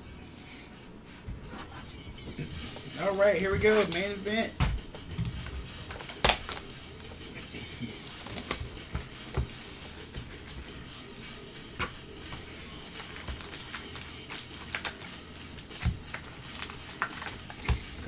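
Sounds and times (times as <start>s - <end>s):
cardboard and wrappers rustling: 5.2s - 11.2s, 12.3s - 18.0s.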